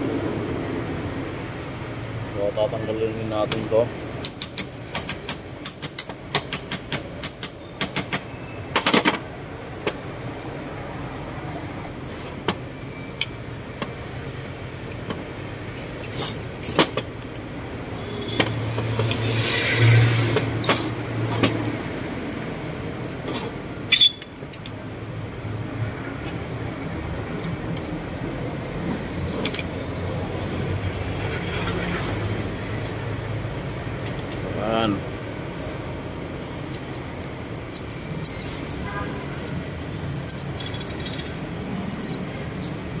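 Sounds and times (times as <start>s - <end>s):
metal parts clinking: 15.8s - 17.5s, 23.0s - 24.8s, 29.3s - 30.0s, 36.1s - 43.0s.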